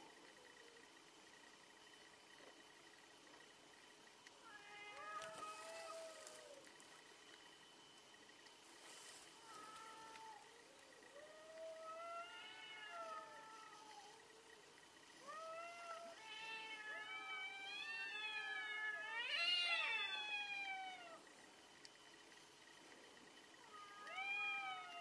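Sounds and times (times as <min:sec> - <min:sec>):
cats yowling: 0:04.4 - 0:06.7, 0:09.4 - 0:14.6, 0:15.2 - 0:21.3, 0:23.6 - 0:25.0.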